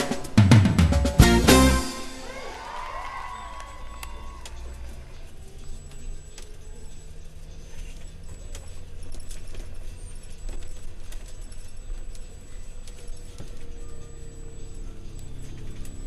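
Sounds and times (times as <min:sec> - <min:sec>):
bus engine and road drone: 0:03.3 - 0:16.0.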